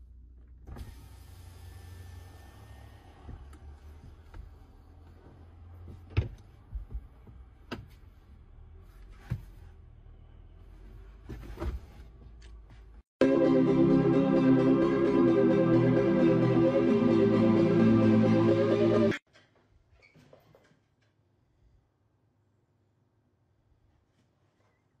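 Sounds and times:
music: 13.2 - 19.2.

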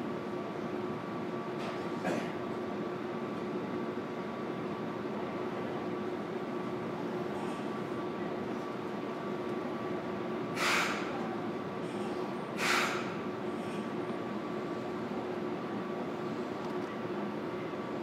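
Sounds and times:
train equipment hum: 0.0 - 18.0
air hissing: 10.6 - 11.1, 12.6 - 13.2.

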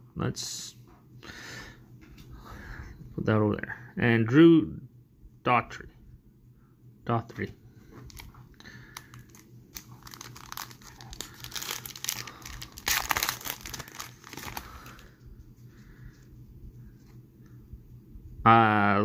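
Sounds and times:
foil wrapper crinkling and ripping: 8.0 - 15.1.

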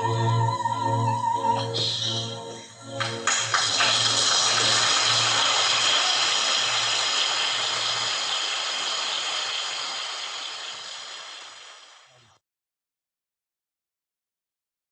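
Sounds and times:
audience applauding: 2.9 - 11.9.

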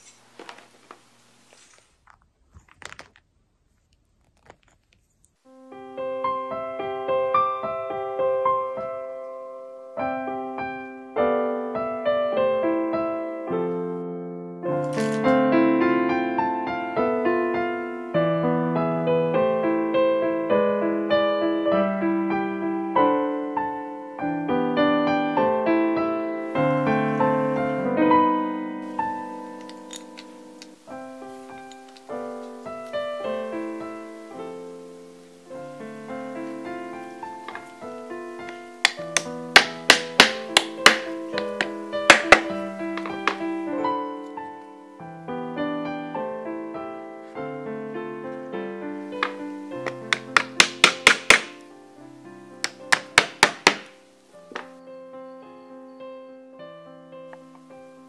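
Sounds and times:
gentle solo piano: 5.5 - 58.0
metal paint tubes clicking: 14.8 - 15.3, 29.6 - 30.8, 38.4 - 43.4, 49.2 - 51.6
tubes knocking on canvas: 38.8 - 43.4.

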